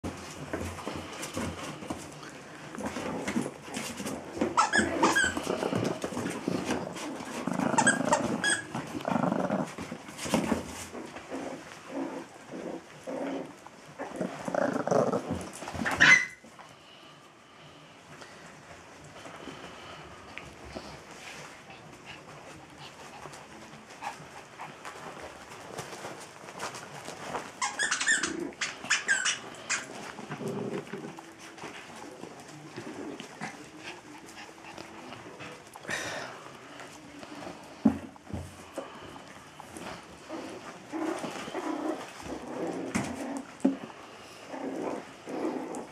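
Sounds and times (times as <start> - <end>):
puppies scuffling: 0.0 - 16.8, 18.1 - 45.9
puppies growling: 0.1 - 16.4, 22.0 - 45.9
puppies yipping: 15.8 - 16.4, 27.6 - 30.0.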